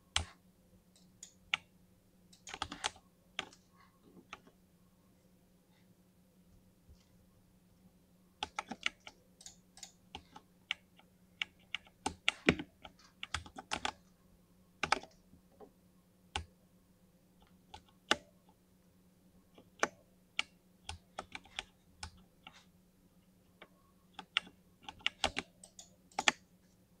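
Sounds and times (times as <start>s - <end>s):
mechanical keyboard typing: 2.4s - 3.6s, 8.4s - 10.8s, 11.4s - 14.0s, 24.2s - 26.4s.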